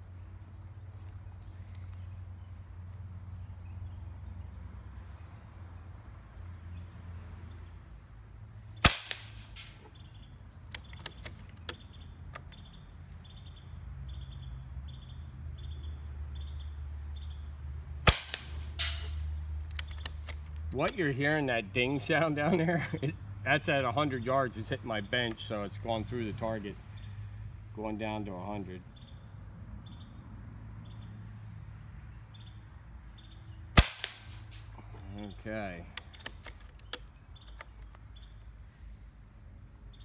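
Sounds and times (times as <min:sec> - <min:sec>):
crickets chirping: 0:00.0 - 0:40.0
air rifle shots: 0:08.8 - 0:09.9, 0:18.0 - 0:20.4, 0:33.8 - 0:34.7
rifle action clicks: 0:19.7 - 0:20.6, 0:36.0 - 0:38.0.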